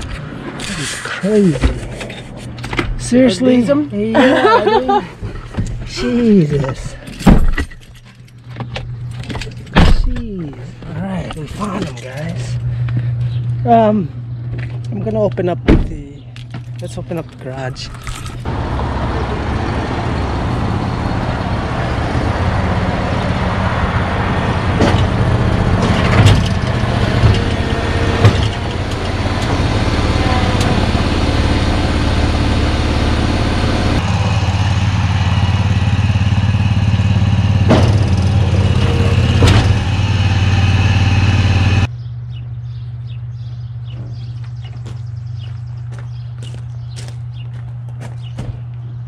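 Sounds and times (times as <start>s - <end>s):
low steady engine hum: 0.0s - 49.0s
mower engine running: 18.5s - 41.9s.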